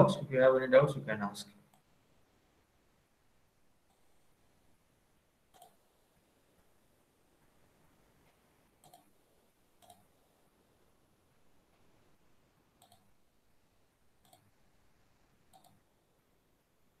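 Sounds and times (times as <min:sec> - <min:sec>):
computer mouse clicks: 0:05.5 - 0:05.8, 0:08.8 - 0:09.2, 0:09.8 - 0:10.1, 0:12.8 - 0:13.1, 0:14.2 - 0:14.6, 0:15.5 - 0:15.8.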